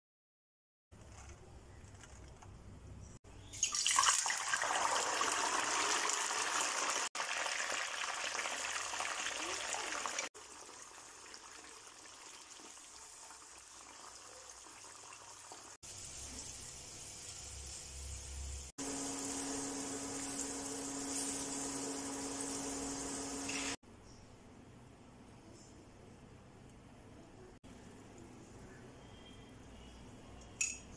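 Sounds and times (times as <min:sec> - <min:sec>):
peas sizzling in hot oil: 0:15.2 - 0:23.8.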